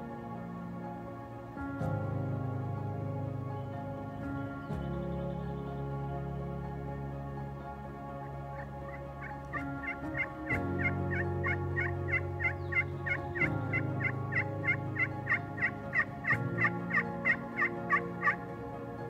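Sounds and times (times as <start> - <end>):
soft background music: 0.0 - 19.0.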